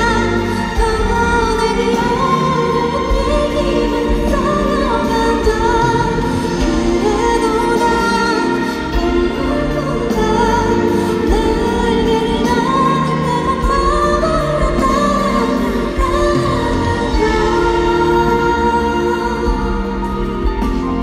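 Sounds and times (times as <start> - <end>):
band accompaniment with bass: 0.0 - 21.0
woman singing: 0.0 - 21.0.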